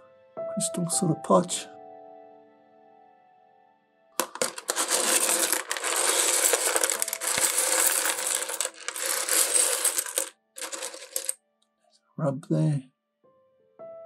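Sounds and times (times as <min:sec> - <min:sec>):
stones clattering and clinking: 0:04.2 - 0:11.4.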